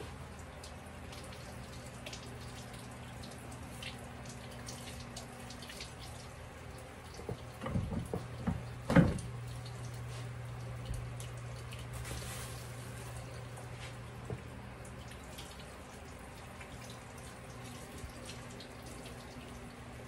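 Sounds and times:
faucet running into sink: 7.0 - 12.4
knocks and rustles: 7.2 - 9.2.

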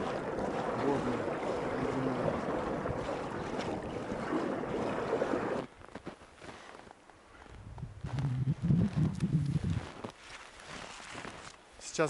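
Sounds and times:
water gurgling and rushing: 0.0 - 5.7
wind on microphone: 0.0 - 5.7, 7.5 - 10.1.

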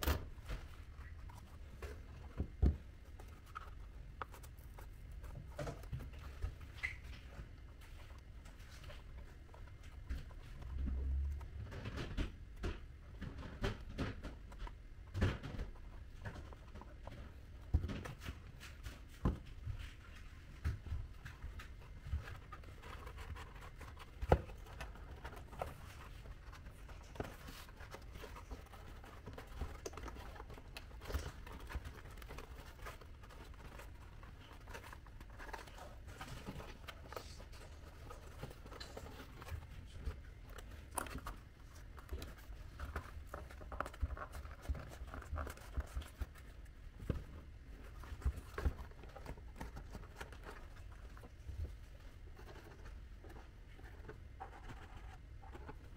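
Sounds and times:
cardboard taps and rustles: 20.6 - 55.9.

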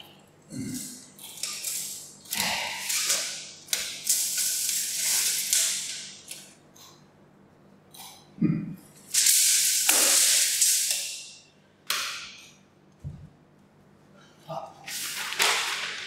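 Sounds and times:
paper rustling and crinkling: 14.9 - 16.0.

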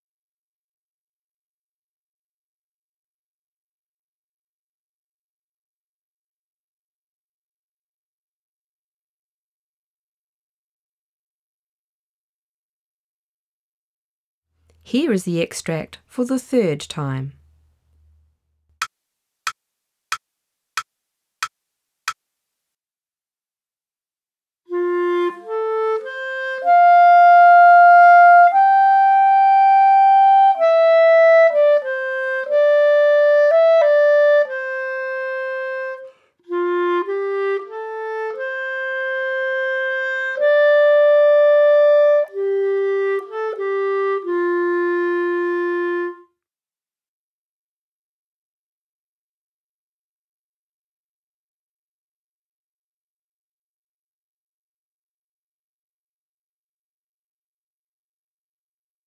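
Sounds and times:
solo instrument melody: 24.7 - 46.4.

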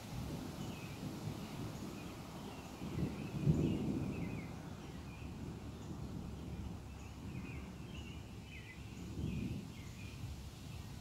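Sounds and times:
small songbirds chirping: 0.0 - 11.0.

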